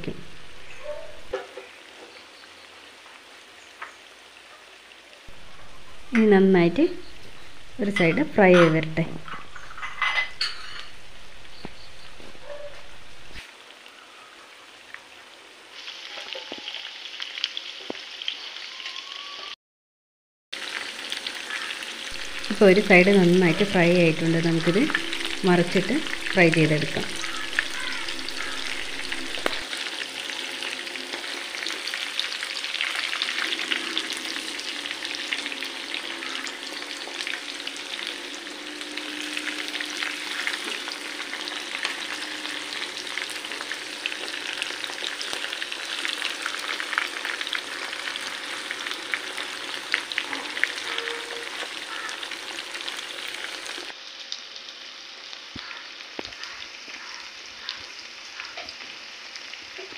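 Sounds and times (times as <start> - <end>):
chicken sizzling in hot oil: 9.2 - 19.5, 20.6 - 59.9
spatula turning food in pan: 22.2 - 52.9.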